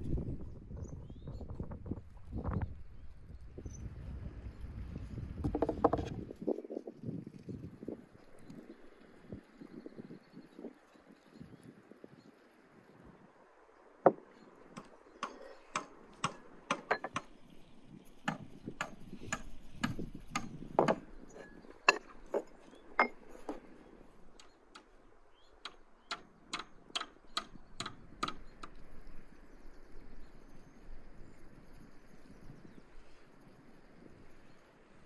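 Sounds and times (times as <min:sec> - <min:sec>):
wooden spoon tapping clay pots: 0:14.8 - 0:17.3, 0:18.3 - 0:23.6.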